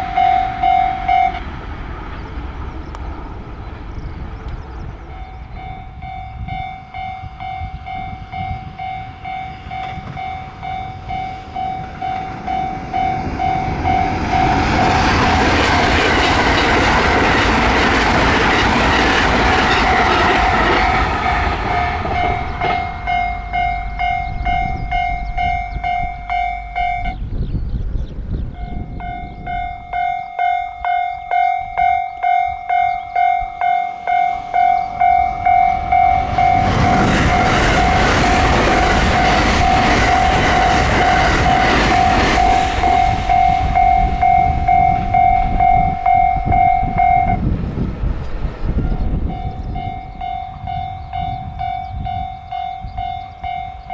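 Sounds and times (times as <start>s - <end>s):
electric train rushing past: 0.0s - 53.9s
level crossing alarm dinging: 19.6s - 27.2s, 28.6s - 47.4s.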